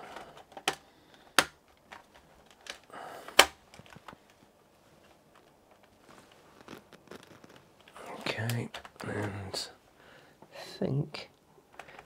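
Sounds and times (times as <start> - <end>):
plastic clips snapping: 0.1 - 4.4.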